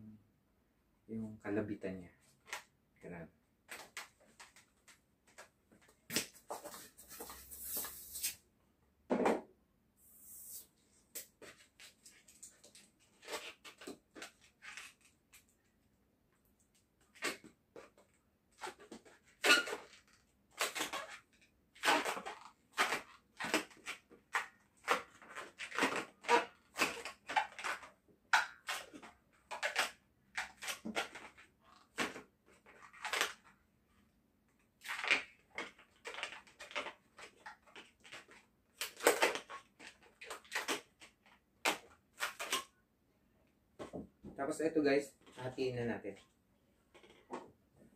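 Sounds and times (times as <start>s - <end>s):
balloons rubbing and squeaking: 6.7s - 8.4s, 10.0s - 10.8s, 18.5s - 24.0s, 24.8s - 27.9s.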